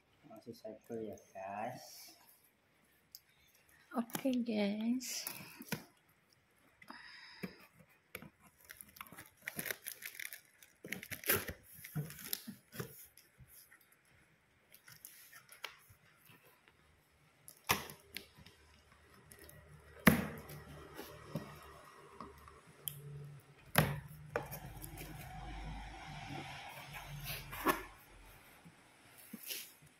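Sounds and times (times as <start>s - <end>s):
packing tape cut and torn: 8.2s - 13.5s
plastic wrap crinkling: 8.3s - 16.7s.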